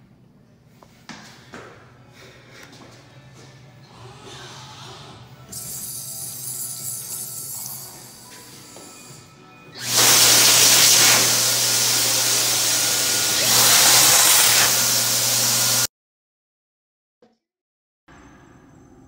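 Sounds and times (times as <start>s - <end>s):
hand dryer rushing air: 9.8s - 15.9s.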